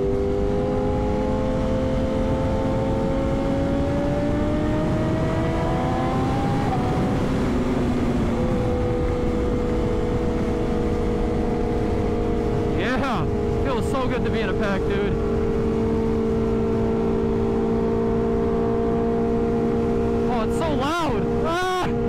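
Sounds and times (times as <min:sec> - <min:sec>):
motorcycle engine: 0:00.0 - 0:22.0
wind rush on microphone: 0:00.0 - 0:22.0.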